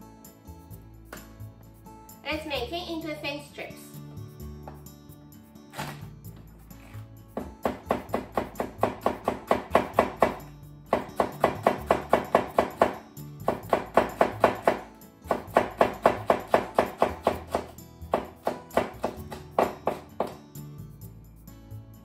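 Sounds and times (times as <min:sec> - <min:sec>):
background music: 0:00.0 - 0:22.0
knife slicing on wooden board: 0:05.7 - 0:06.1.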